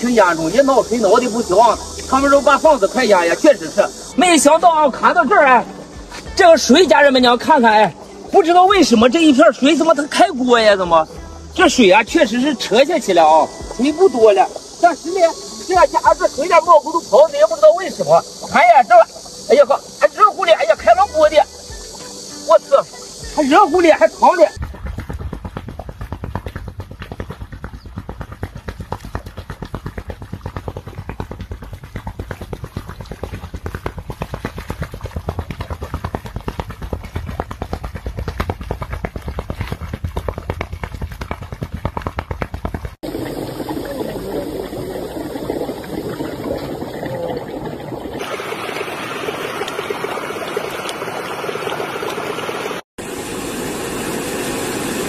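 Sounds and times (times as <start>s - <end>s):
muddy water bubbling: 0.0s - 10.3s, 11.6s - 52.8s
steady rushing noise: 53.0s - 55.0s.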